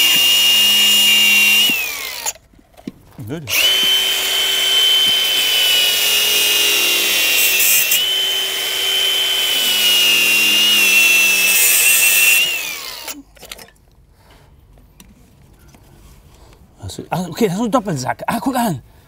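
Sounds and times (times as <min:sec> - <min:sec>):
power tool whining: 0:00.0 - 0:02.4, 0:03.5 - 0:13.2.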